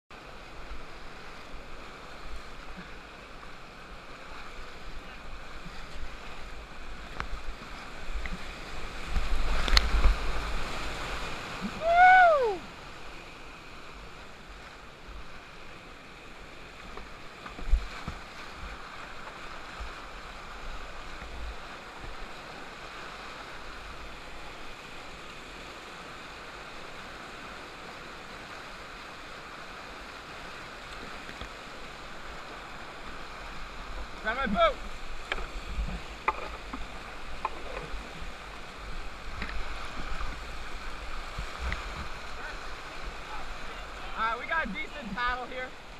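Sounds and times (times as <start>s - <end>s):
river rapids rushing: 0.2s - 45.9s
loud rising and falling call: 11.8s - 12.7s.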